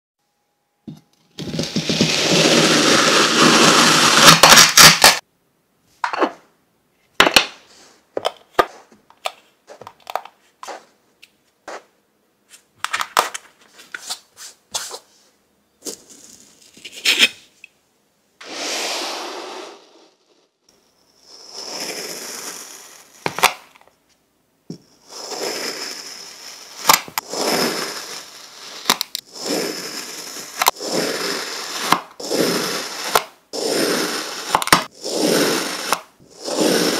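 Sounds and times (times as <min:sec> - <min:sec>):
knife slicing through sand: 0:25.1 - 0:36.9.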